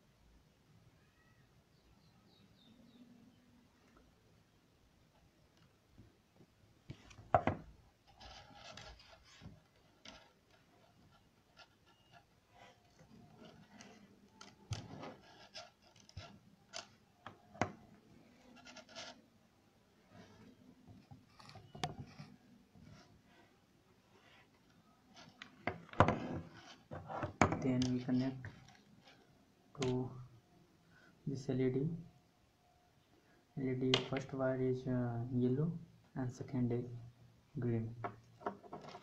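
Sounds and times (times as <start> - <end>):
wire leads rustling and scraping: 8.0 - 19.2, 20.0 - 23.5, 24.1 - 29.4.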